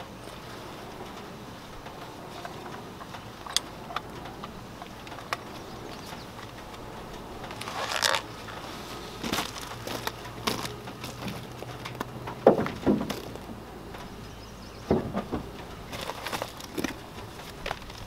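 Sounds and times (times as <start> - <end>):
sharp clicks of gear: 1.0 - 8.6
clothing rustling: 6.4 - 12.0.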